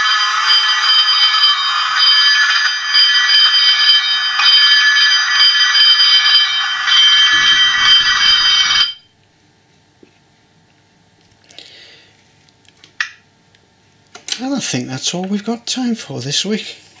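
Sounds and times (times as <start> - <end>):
bell ringing rapidly: 0.0 - 9.0.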